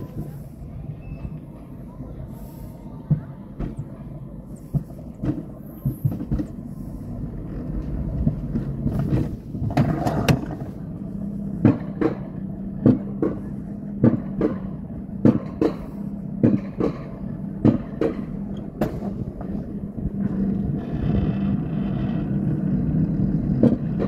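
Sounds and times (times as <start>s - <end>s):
wheels rumbling on metal rails: 0.0s - 24.0s.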